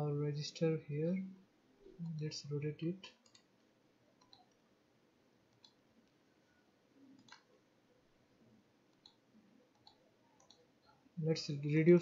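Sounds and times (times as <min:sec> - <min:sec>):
faint computer mouse clicks: 0:03.1 - 0:03.6, 0:04.2 - 0:04.6, 0:05.5 - 0:06.2, 0:07.2 - 0:07.5, 0:08.9 - 0:11.0.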